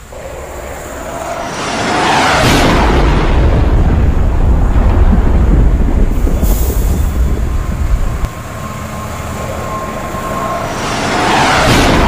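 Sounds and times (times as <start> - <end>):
diesel train passing: 0.0 - 12.0
heavy low rumble: 0.0 - 12.0
train wheels squealing: 8.4 - 12.0.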